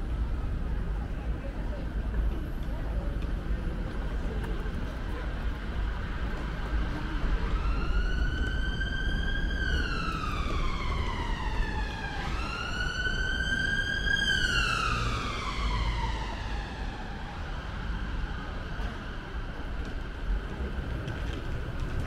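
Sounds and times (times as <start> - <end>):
emergency vehicle siren wailing: 6.2 - 20.4.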